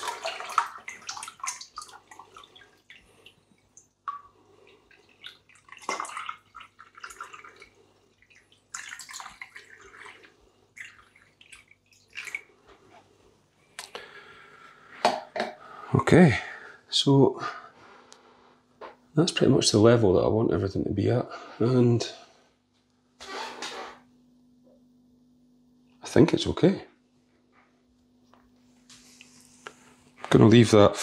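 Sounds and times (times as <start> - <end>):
water pouring and splashing: 0.0 - 12.7
water dripping: 0.0 - 12.8.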